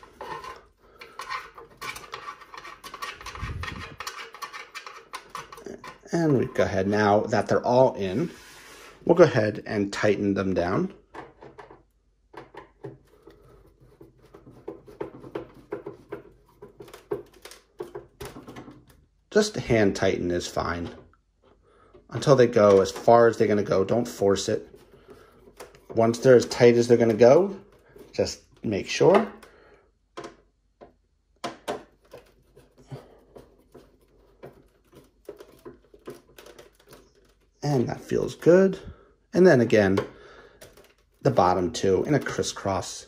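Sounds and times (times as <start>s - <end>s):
faint rubbing: 0.0s - 9.2s.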